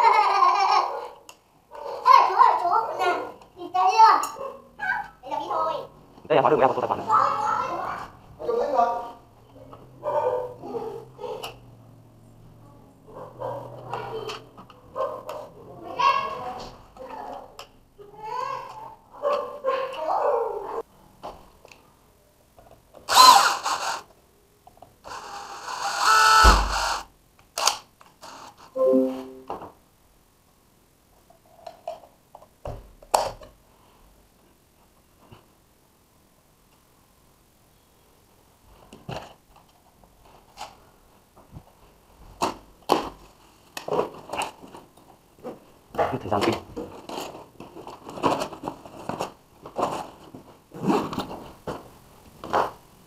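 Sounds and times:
brief pitched tone: 28.8s - 29.5s.

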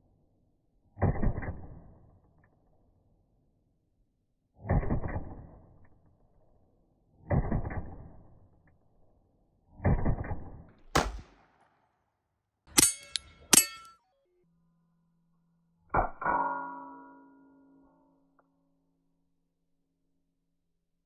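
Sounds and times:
ringing metallic cracks: 12.7s - 14.0s.

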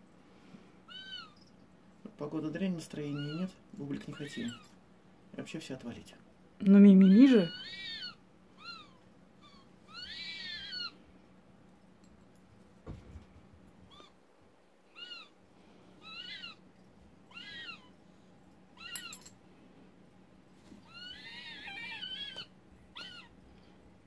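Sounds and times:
owl squeaky calls: 0.9s - 1.4s, 7.0s - 11.0s, 14.9s - 15.4s, 16.0s - 16.6s, 17.3s - 18.0s, 18.8s - 19.2s, 20.9s - 23.3s.

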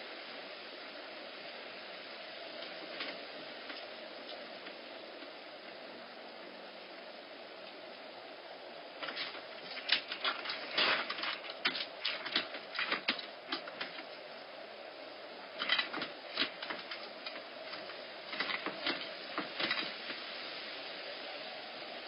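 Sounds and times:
steady hiss: 0.0s - 22.0s
kittens scrabbling at a door: 9.0s - 14.1s.

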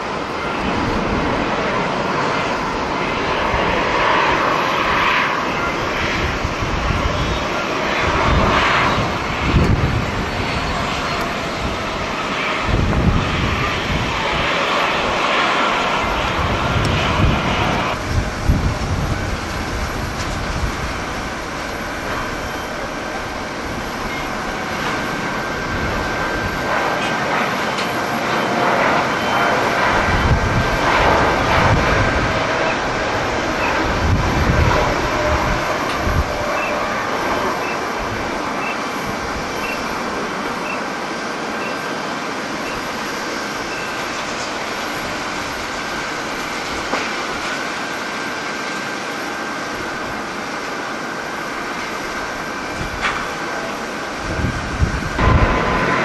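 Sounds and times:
wind buffeting microphone: 0.0s - 40.7s, 51.3s - 56.0s
jet engines rumbling at takeoff: 0.0s - 56.0s.

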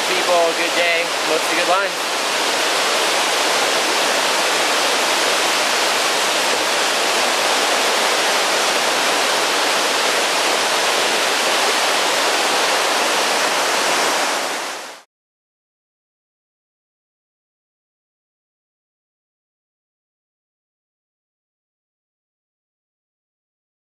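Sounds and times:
river water over rocks: 0.0s - 15.0s.

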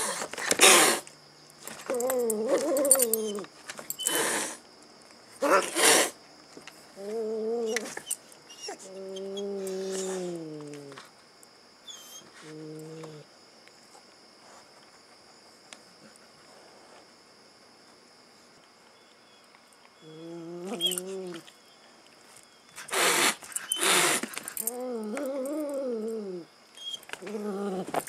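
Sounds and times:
cat hissing: 0.0s - 1.1s, 4.0s - 4.6s, 5.4s - 6.2s, 22.8s - 24.3s
cat growling: 20.0s - 21.4s, 23.8s - 26.5s, 27.2s - 28.0s.

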